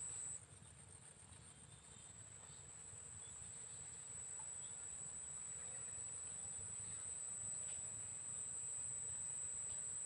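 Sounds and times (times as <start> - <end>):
insects trilling: 0.0 - 0.4.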